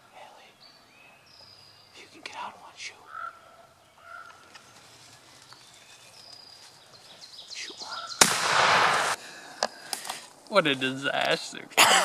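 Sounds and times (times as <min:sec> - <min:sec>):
faint bird calls: 0:00.0 - 0:08.3
shotgun blast: 0:08.2 - 0:09.2.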